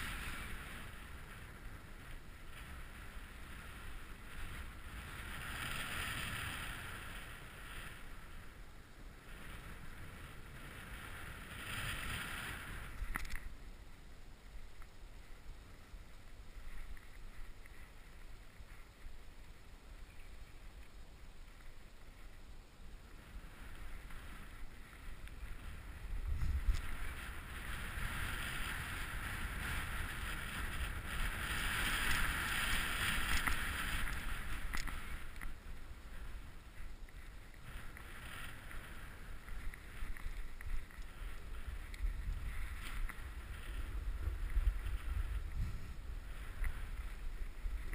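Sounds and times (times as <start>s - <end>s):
snowboard hissing through snow: 0.0s - 13.0s, 22.9s - 47.9s
wind rumble on microphone: 0.0s - 47.9s.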